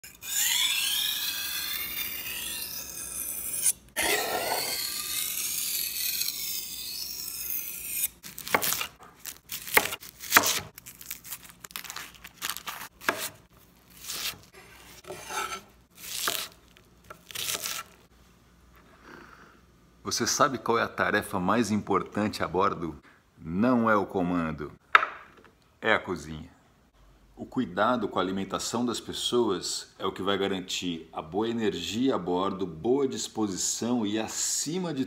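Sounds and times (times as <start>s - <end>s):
knife scraping on whetstone: 0.0s - 10.7s, 12.6s - 13.4s, 14.0s - 18.0s
knife chopping on wooden board: 8.4s - 9.0s, 9.6s - 10.7s, 12.7s - 13.4s, 15.0s - 17.9s.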